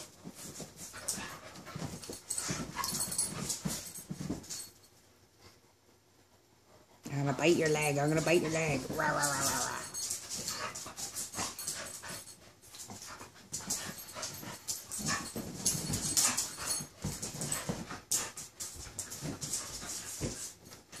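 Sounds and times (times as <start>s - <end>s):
dogs scuffling and mouthing: 0.0s - 5.6s, 6.9s - 21.0s
dogs panting: 6.6s - 21.0s.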